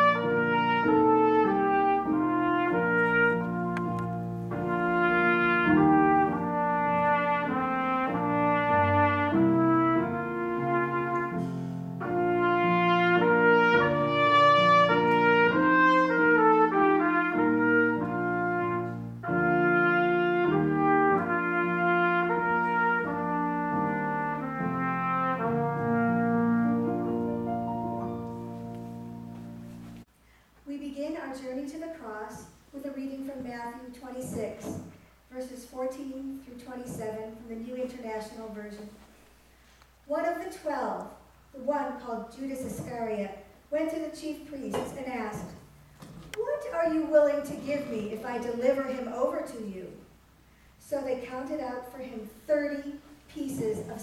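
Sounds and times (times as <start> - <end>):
electric keyboard accompaniment: 0.0 - 30.1
trumpet playing held notes: 0.0 - 30.1.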